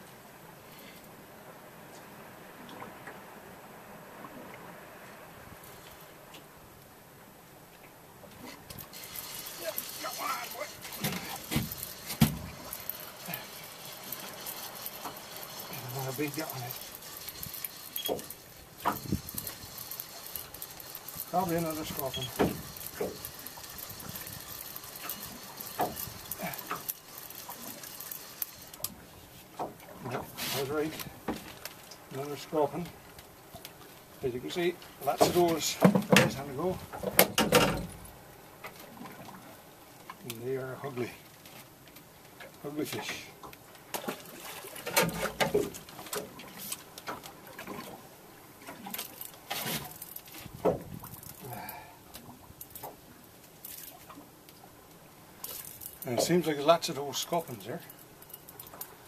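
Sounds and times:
faint hiss: 0:08.4 - 0:29.6
fishing reel clicking: 0:08.8 - 0:28.9.

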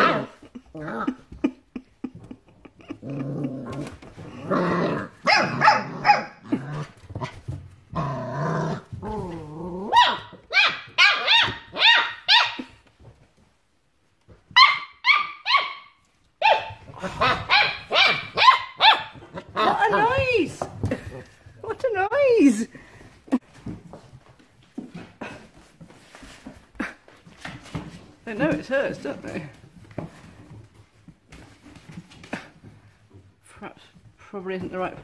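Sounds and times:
puppies growling: 0:00.0 - 0:10.4
high-pitched puppy yapping: 0:09.9 - 0:12.7, 0:14.5 - 0:19.2.

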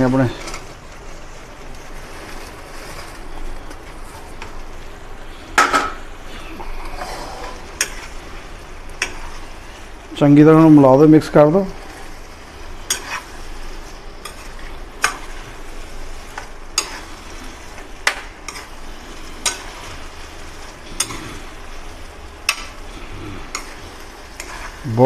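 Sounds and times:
sizzle of frying: 0:00.0 - 0:25.0
spatula stirring thick gravy: 0:07.0 - 0:25.0.

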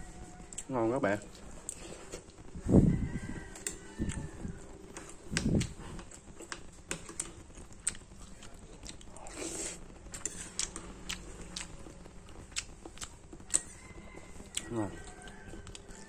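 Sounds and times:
person chewing: 0:00.5 - 0:16.0
spoon scraping ceramic bowl: 0:10.1 - 0:10.6.

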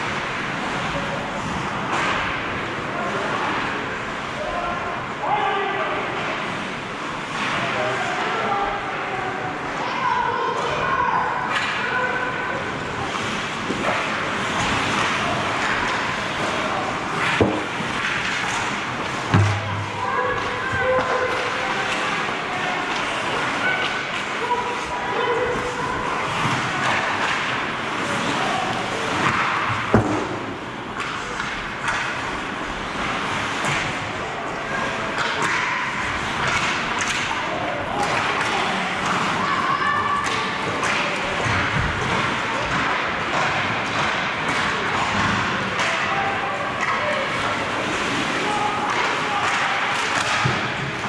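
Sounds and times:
sharp knocks: 0:19.3 - 0:19.9.

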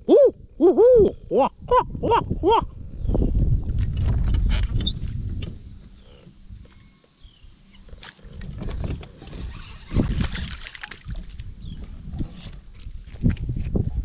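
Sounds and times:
fish splashing at water surface: 0:09.5 - 0:11.4.

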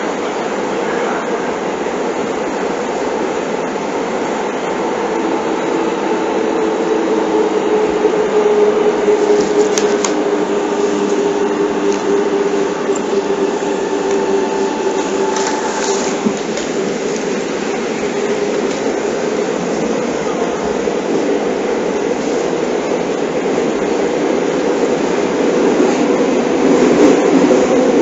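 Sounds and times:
train rumbling in tunnel: 0:00.0 - 0:28.0
train motor whine: 0:05.2 - 0:19.0.

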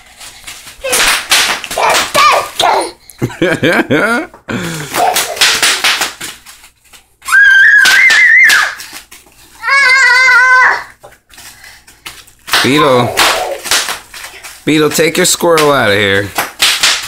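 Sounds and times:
child squealing: 0:01.8 - 0:03.0, 0:07.3 - 0:08.8, 0:09.6 - 0:11.0
child giggling: 0:01.9 - 0:05.8
bubble wrap popping underfoot: 0:04.7 - 0:17.0.

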